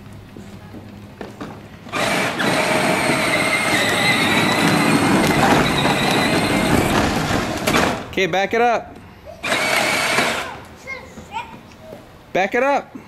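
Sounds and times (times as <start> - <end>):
plastic wheels rumbling on asphalt: 0.0 - 8.2
electric motors whining: 1.9 - 8.0, 9.4 - 10.7.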